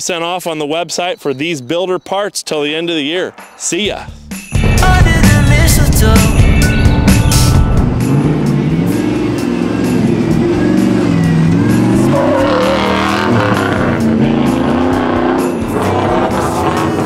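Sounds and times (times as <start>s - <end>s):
music with steady beat: 3.3s - 17.0s
truck engine revving: 6.0s - 17.0s.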